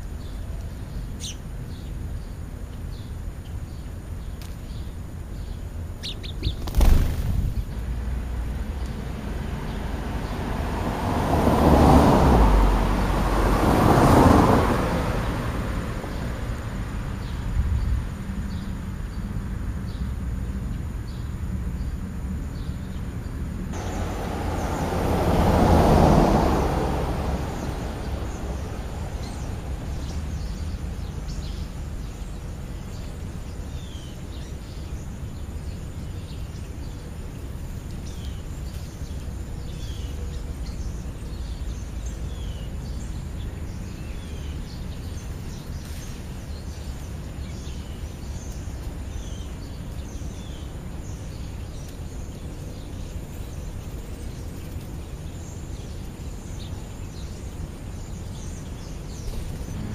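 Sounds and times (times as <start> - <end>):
low outdoor rumble: 14.9 - 59.9.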